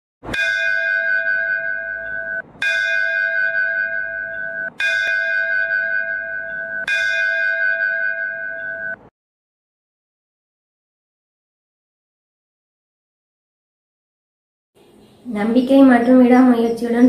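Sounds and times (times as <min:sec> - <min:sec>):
bell chime: 0:00.3 - 0:09.1.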